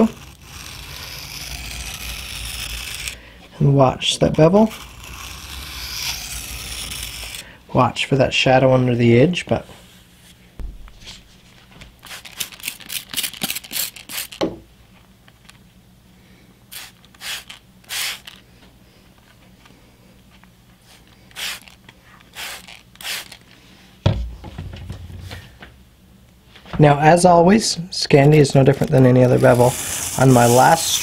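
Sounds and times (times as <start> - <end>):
object thumping on wooden bench: 10.6 - 11.0, 24.0 - 25.4
spray bottle spritzing: 12.1 - 14.4, 16.7 - 18.4, 21.3 - 23.4.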